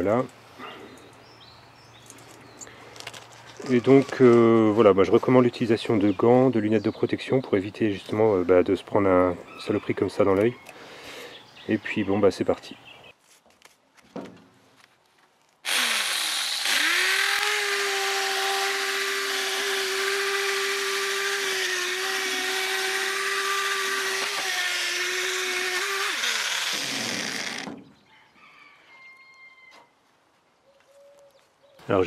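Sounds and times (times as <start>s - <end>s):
electric drill motor whine: 15.7s - 27.7s.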